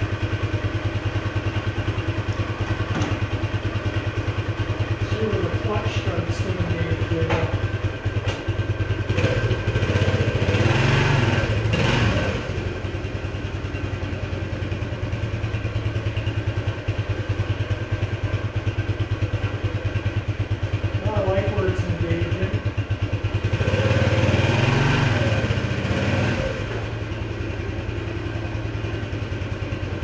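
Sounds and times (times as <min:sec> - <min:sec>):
dirt bike engine running: 0:00.0 - 0:30.0.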